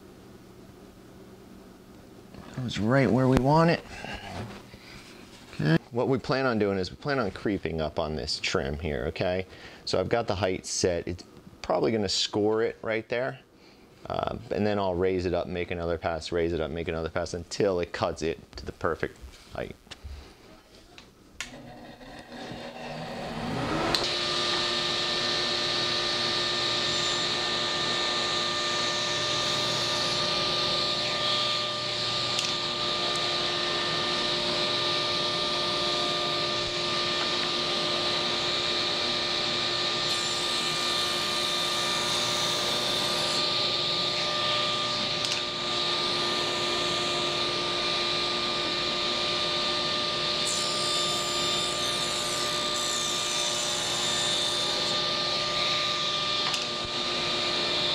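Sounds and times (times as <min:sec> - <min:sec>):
table saw whining: 0:21.4 - 0:57.9.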